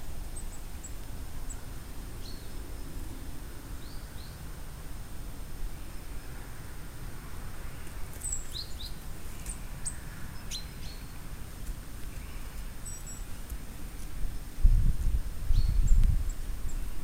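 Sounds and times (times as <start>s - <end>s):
small birds chirping: 0.0s - 4.5s, 7.6s - 14.3s, 15.0s - 17.0s.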